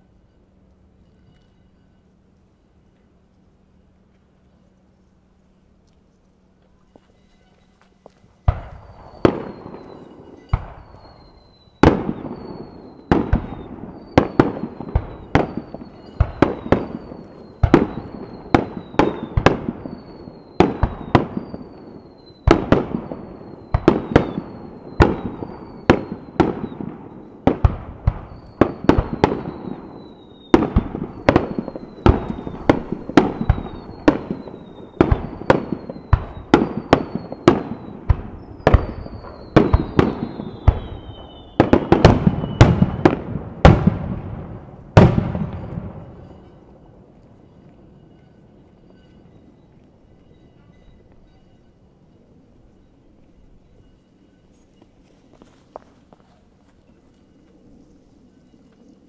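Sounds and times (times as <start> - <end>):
firework whistles: 6.8 - 59.0
firework bangs: 8.4 - 46.8.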